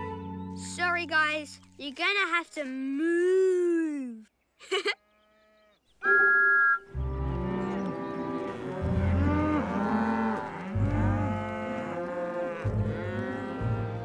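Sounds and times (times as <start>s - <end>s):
background music: 0.0s - 1.8s, 6.0s - 14.0s
cartoon cows mooing: 7.0s - 14.0s.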